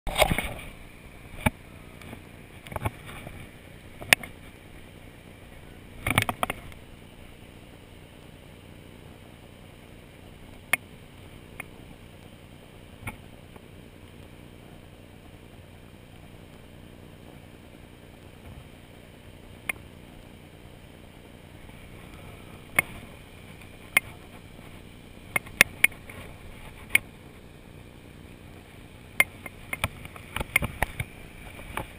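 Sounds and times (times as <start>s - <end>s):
sharp clicks and knocks: 6.0s - 6.8s, 29.2s - 31.9s.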